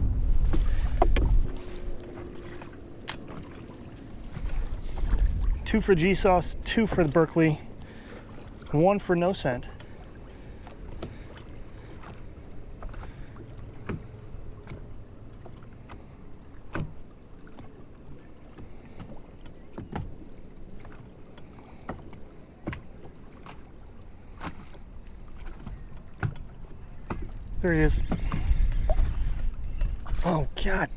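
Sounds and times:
low background rumble: 0.0s - 6.7s
waves slapping against boat hull: 0.0s - 30.9s.

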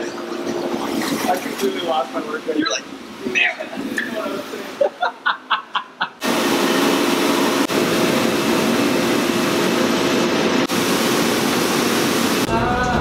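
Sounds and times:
dishwasher spraying water: 0.0s - 2.6s, 6.2s - 12.5s
low motor hum: 6.2s - 13.0s.

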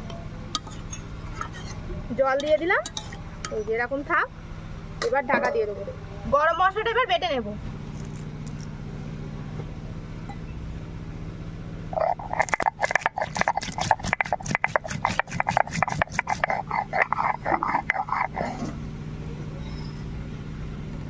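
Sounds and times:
steady low hum: 0.0s - 21.0s
stone roller scraping on slab: 0.7s - 1.8s, 12.0s - 18.9s.

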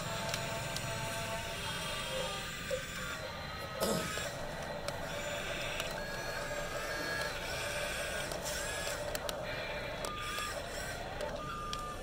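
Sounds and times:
small electric motors whining: 0.0s - 12.0s
clicks: 4.1s - 12.0s.

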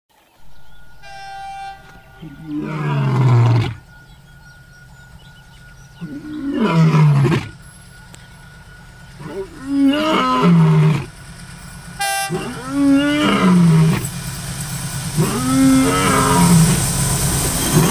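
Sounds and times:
horn-like note: 0.6s - 4.0s, 12.0s - 13.8s
lion roar: 2.2s - 3.8s, 6.0s - 7.6s, 9.2s - 11.2s, 12.3s - 14.1s, 15.2s - 16.8s.

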